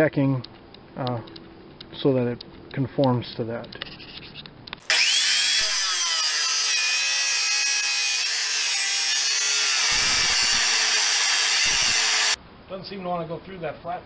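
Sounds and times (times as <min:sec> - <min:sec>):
chop saw grinding metal: 0:04.8 - 0:12.4.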